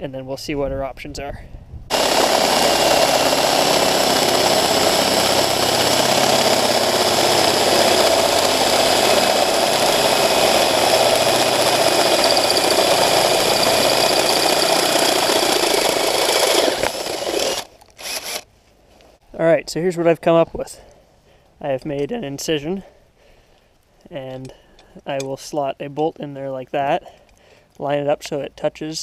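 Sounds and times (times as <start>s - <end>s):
electric drill boring into steel: 1.9s - 18.4s.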